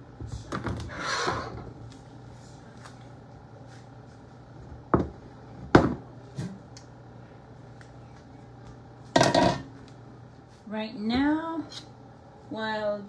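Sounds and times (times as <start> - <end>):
kitchenware knocking on counter: 5.7 - 6.0, 9.2 - 9.7.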